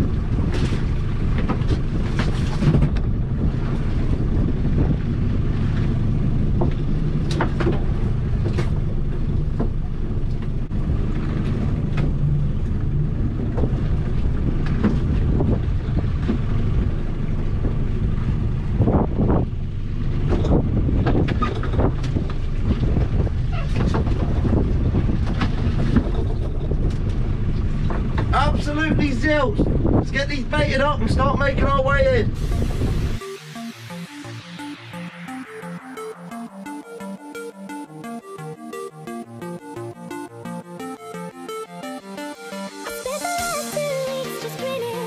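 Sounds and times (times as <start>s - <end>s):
wind buffeting microphone: 0.0s - 33.2s
boat engine low rumble: 0.0s - 45.0s.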